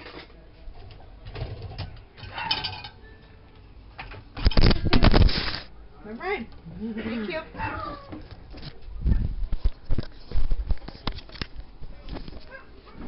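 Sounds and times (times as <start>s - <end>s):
rubbing and clattering on microphone: 4.4s - 5.7s, 8.1s - 13.0s.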